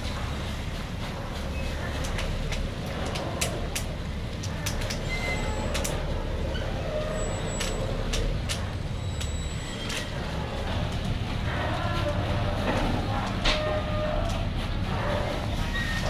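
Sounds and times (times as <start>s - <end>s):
ferry engines idling: 0.0s - 16.0s
scattered clicks: 2.0s - 5.1s, 5.7s - 6.0s.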